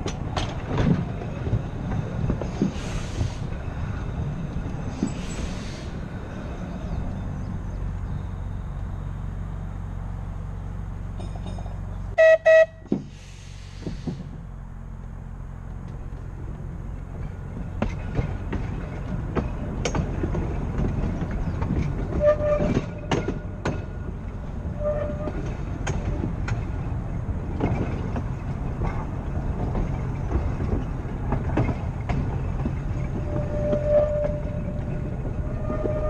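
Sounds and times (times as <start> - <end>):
wheels clicking over rail joints: 0.0 - 8.3, 10.8 - 36.0
tram motors and wheels rumbling: 0.0 - 36.0
air hiss: 2.7 - 3.6, 5.0 - 6.1, 13.0 - 14.4
tram horn blasts: 12.1 - 12.9, 33.2 - 36.0
wheel squeals: 19.8 - 23.7, 24.5 - 26.6, 31.6 - 36.0.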